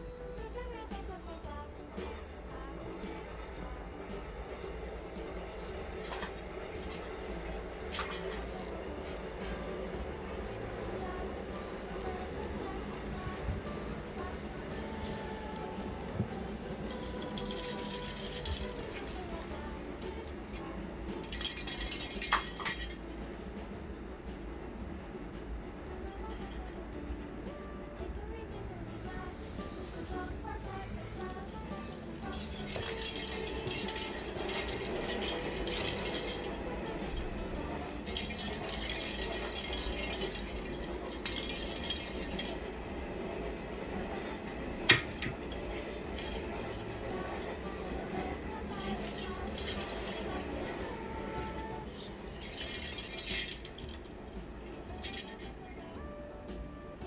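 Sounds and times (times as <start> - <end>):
cat toy ball rattling: 16.9 - 23.1, 31.4 - 42.6.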